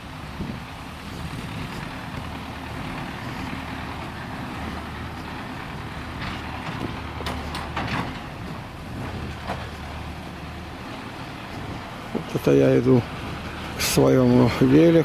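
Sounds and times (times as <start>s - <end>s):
heavy machinery engine humming: 0.0s - 15.0s.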